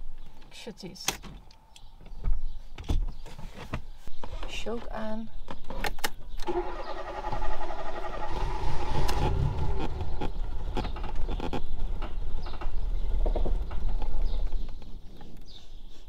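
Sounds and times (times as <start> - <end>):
engine rumble: 6.3 - 15.6
starter motor whirring: 6.4 - 11.2.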